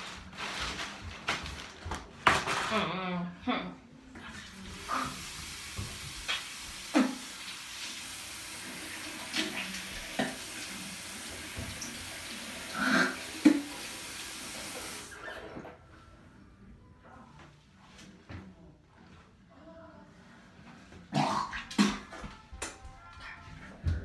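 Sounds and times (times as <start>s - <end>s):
tap water running into sink: 4.6s - 15.2s.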